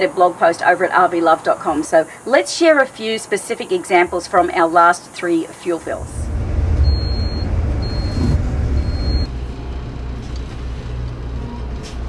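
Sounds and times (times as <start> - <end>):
motorhome engine rumble: 5.8 - 12.0
short high beeps: 6.8 - 9.3.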